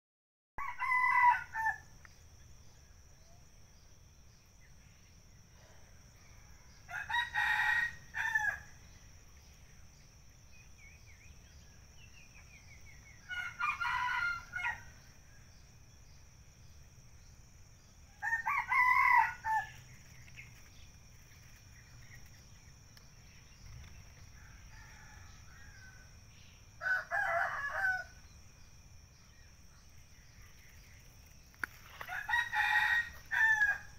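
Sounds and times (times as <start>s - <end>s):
rooster crowing: 0.6s - 1.9s, 6.4s - 8.7s, 13.2s - 15.0s, 18.2s - 19.8s, 24.4s - 26.1s, 26.8s - 28.2s, 32.0s - 33.9s.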